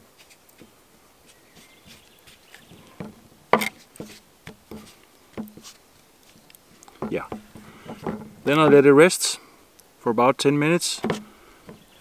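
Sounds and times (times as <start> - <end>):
hands kneading dough: 0.0 - 3.0, 3.6 - 8.8
knocks of wood: 2.6 - 5.8, 6.9 - 8.9, 11.0 - 12.0.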